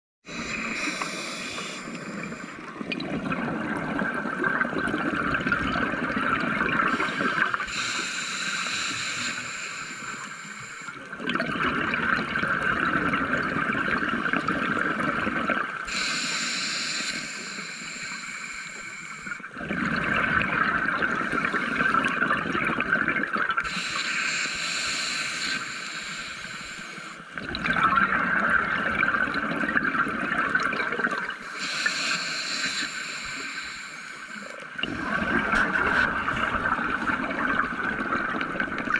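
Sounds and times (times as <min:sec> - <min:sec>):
regulator hiss on inhale: 0:00.3 - 0:02.8, 0:06.9 - 0:11.1, 0:15.8 - 0:19.5, 0:23.6 - 0:27.4, 0:31.4 - 0:37.1
gurgling exhaled bubbles: 0:00.3 - 0:07.9, 0:11.1 - 0:15.9, 0:19.4 - 0:23.9, 0:27.3 - 0:31.9, 0:34.6 - 0:38.9.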